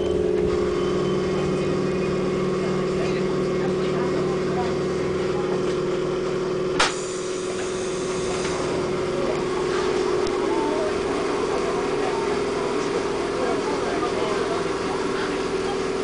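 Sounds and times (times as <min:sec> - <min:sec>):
train running noise: 0:00.0 - 0:16.0
sharp click: 0:06.8 - 0:07.0.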